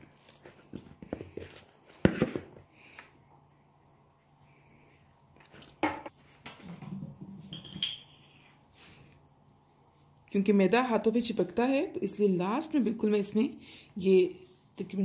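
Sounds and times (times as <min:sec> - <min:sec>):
hands kneading dough: 0:00.0 - 0:03.2
faint steady hum: 0:02.5 - 0:15.0.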